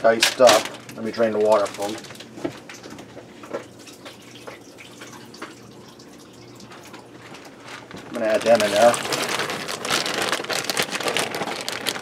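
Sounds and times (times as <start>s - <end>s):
water dripping and splashing: 2.1s - 7.6s.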